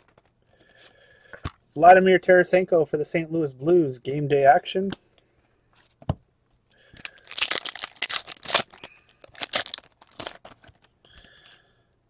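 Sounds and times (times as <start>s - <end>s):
wrapper tearing and crinkling: 7.0s - 10.8s.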